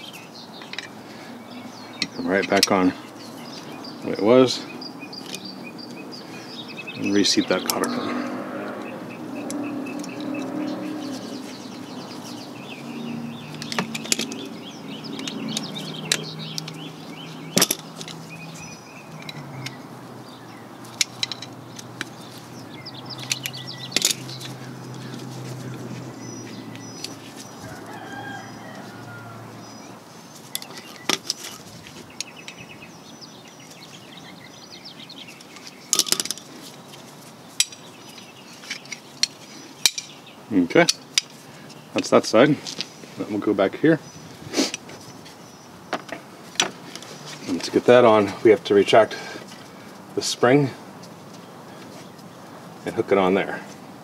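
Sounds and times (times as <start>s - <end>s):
glove and handling rustle: 20.8s - 28.0s, 30.1s - 32.7s, 35.1s - 40.2s
steel parts and pliers clicking: 38.6s - 40.1s.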